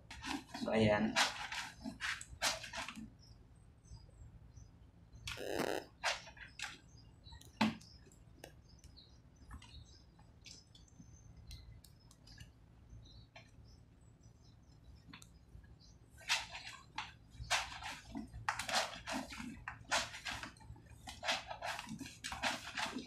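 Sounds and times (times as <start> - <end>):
faint bird chirps: 3.1 - 17.7.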